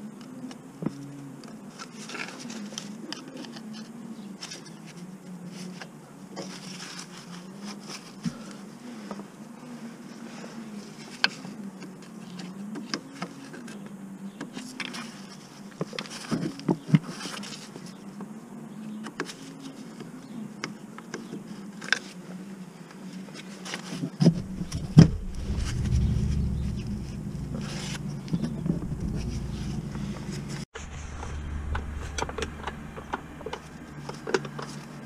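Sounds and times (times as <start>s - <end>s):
wavering buzzing hum: 24.2s - 34.1s
loud low rumble: 24.2s - 34.2s.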